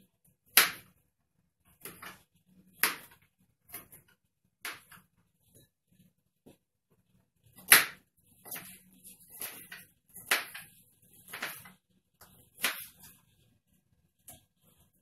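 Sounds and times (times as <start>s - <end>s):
knife chopping on plastic board: 0.5s - 0.9s, 1.8s - 2.2s, 2.8s - 5.0s, 7.6s - 10.7s, 12.6s - 13.1s.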